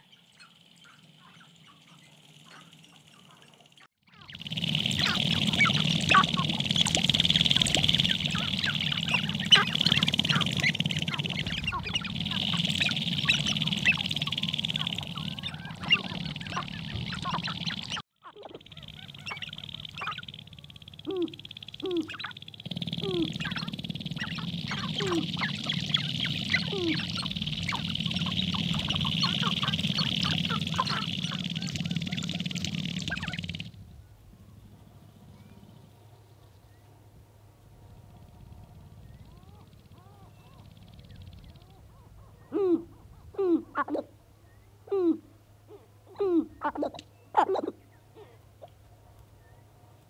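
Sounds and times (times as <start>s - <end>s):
grouse clucking and cackling calls: 0.0s - 33.8s, 38.4s - 44.2s, 45.0s - 48.9s
low short falling calls: 0.0s - 35.6s.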